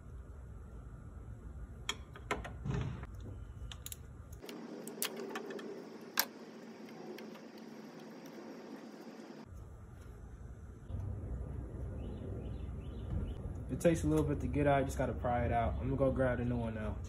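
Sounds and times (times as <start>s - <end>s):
low background rumble: 5.6s - 17.0s.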